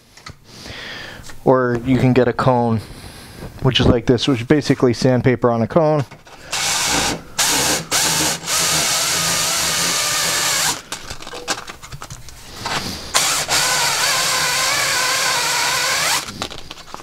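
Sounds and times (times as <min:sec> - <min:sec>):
drill sanding metal: 0:06.5 - 0:10.8, 0:13.2 - 0:16.3.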